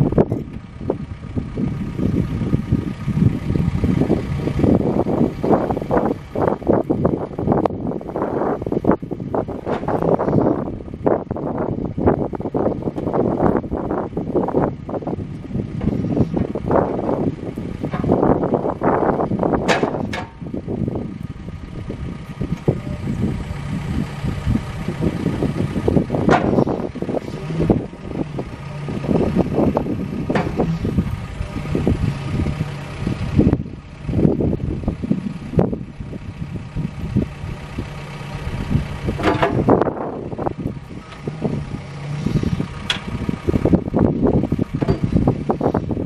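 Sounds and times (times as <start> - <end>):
diesel engine running: 0.0 - 46.0
hydraulic boom moving: 9.4 - 10.8, 15.3 - 20.5, 24.2 - 33.6, 39.0 - 43.8, 44.4 - 45.9.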